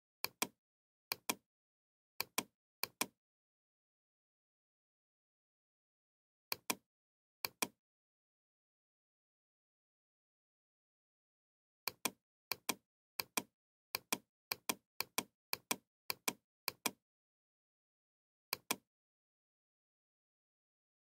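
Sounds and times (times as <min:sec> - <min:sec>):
computer mouse button clicks: 0:07.4 - 0:07.8, 0:18.5 - 0:18.8.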